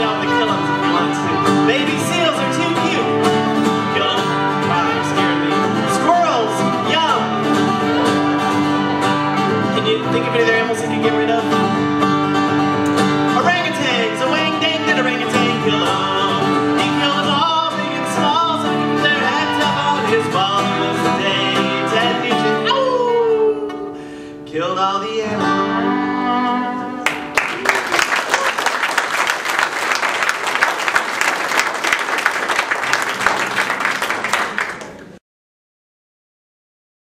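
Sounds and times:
fiddle melody with slides: 0.0 - 22.6, 25.3 - 27.3
strummed acoustic guitar: 0.0 - 27.3.

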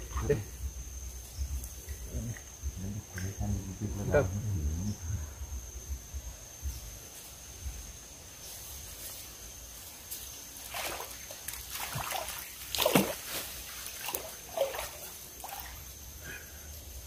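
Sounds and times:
eel splashing in water: 10.6 - 15.8.

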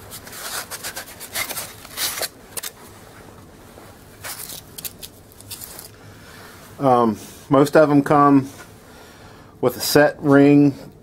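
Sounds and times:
cardboard and styrofoam scraping: 0.0 - 2.7.

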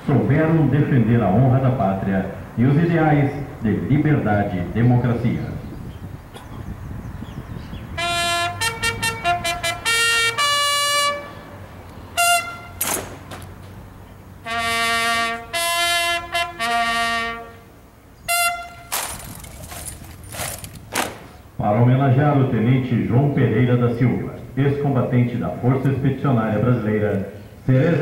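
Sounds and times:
bugle call on trumpet: 8.0 - 11.5, 12.2 - 13.0, 14.4 - 19.9.

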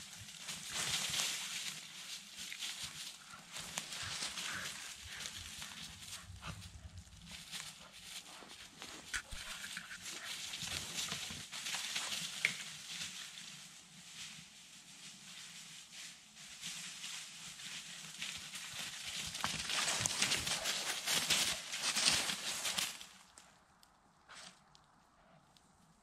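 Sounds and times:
footsteps crunching on dry leaves: 0.0 - 13.5, 16.6 - 23.3.

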